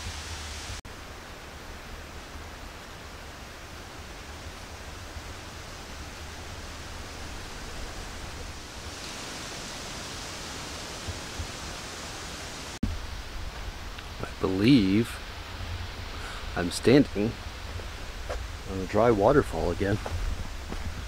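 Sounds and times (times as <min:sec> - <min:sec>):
breeze hissing through leaves: 0:00.0 - 0:21.0
wind rumble on microphone: 0:15.1 - 0:21.0.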